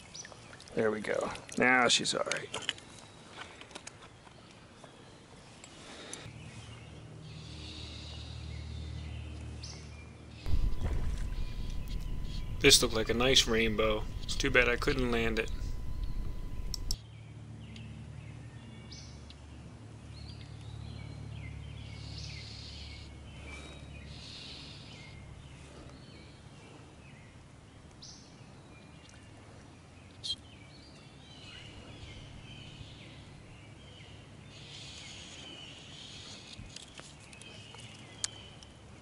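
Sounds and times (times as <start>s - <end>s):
songbirds singing: 4.1s - 39.0s
low rumble: 10.5s - 17.0s
sharp click: 10.5s - 17.0s.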